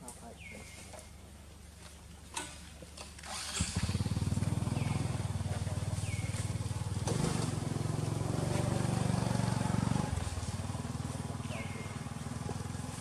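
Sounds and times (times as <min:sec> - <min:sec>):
small engine running: 0:03.1 - 0:13.0.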